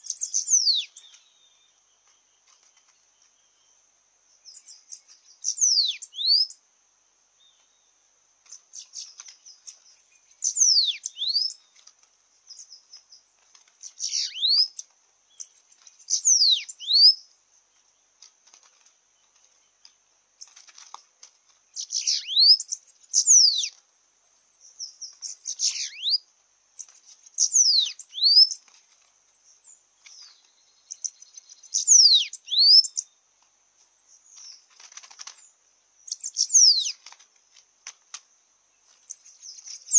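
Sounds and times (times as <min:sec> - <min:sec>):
bird calling high whistles: 0:00.0 - 0:01.1, 0:04.5 - 0:06.6, 0:10.2 - 0:11.6, 0:14.0 - 0:14.8, 0:15.4 - 0:17.2, 0:21.8 - 0:23.7, 0:25.2 - 0:26.2, 0:26.8 - 0:28.6, 0:30.9 - 0:33.0, 0:36.1 - 0:37.0
high insect trill: 0:00.0 - 0:39.9
wing fluttering: 0:01.9 - 0:03.4, 0:08.4 - 0:24.1, 0:26.7 - 0:39.9.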